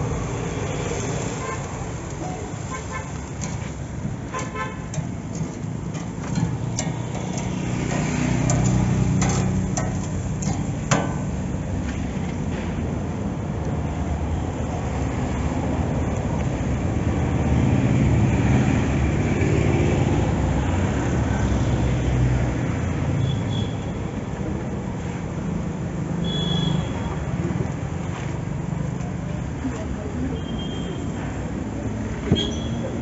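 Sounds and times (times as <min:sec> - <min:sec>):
road traffic rumbling: 0:00.0 - 0:33.0
vehicle passing: 0:06.5 - 0:10.3.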